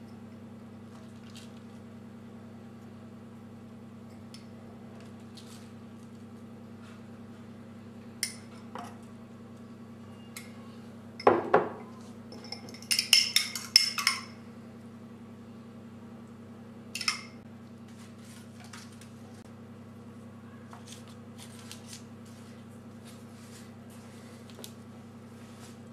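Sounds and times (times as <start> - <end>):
steady low hum: 0.0 - 25.9.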